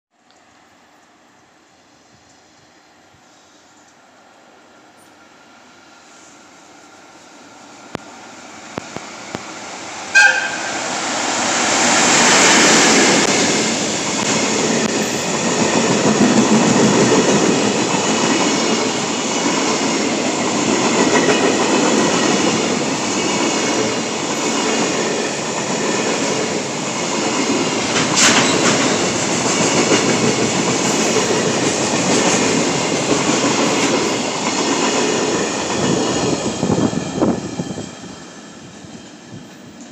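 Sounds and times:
train passing rumble: 0.4s - 39.9s
short locomotive horn toot: 10.1s - 10.8s
wheels clacking over rail joints: 26.9s - 36.0s.

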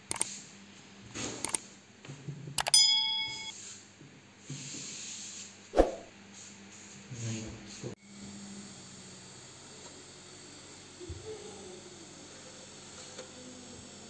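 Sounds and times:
mouse clicks: 0.0s - 0.3s
bell-like ding: 2.7s - 3.5s.

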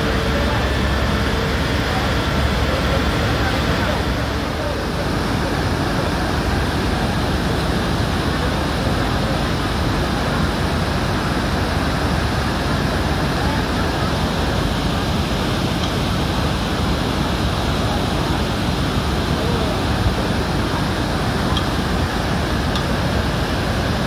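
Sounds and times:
floodwater rushing through channel: 0.0s - 24.0s.

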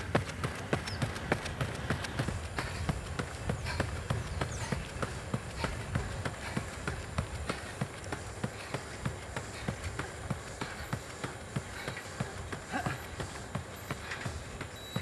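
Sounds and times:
running footsteps on asphalt: 0.0s - 15.0s.

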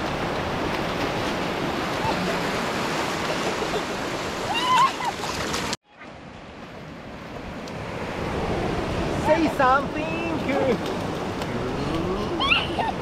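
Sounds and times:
surf washing up shallows: 0.0s - 13.0s
child squealing: 4.5s - 5.2s, 12.3s - 13.0s.

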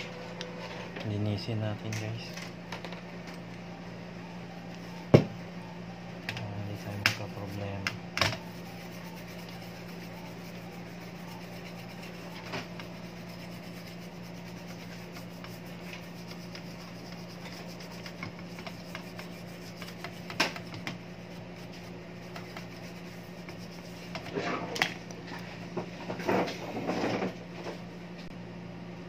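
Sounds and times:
constant low hum: 0.0s - 29.0s
toothbrush scrubbing circuit board: 6.6s - 24.4s.

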